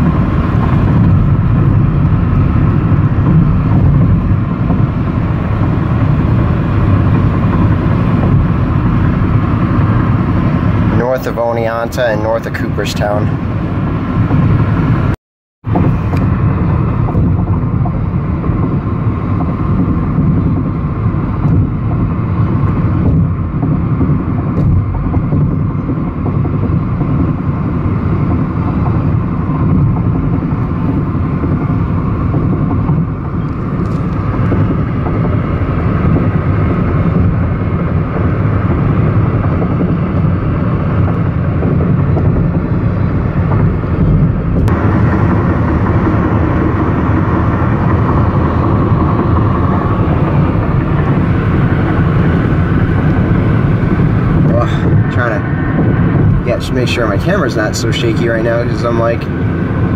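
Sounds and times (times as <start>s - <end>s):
car road noise at highway speed: 0.0s - 59.9s.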